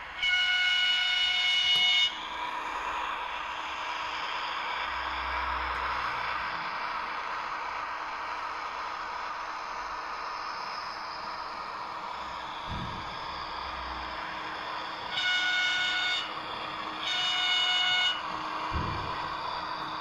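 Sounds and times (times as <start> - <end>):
model train horn blasts: 0.0 - 2.2, 15.1 - 19.3
steady hiss: 2.2 - 17.0.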